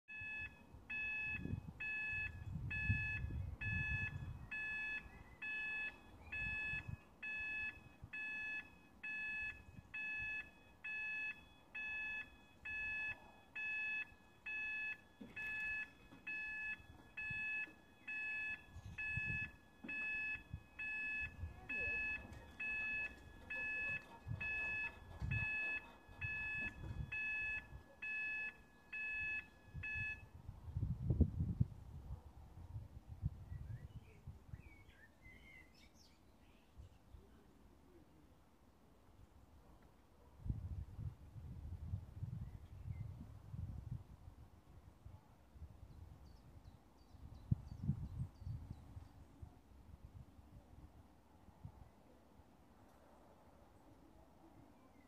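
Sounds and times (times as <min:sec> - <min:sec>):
level crossing alarm beeping: 0:00.1 - 0:30.4.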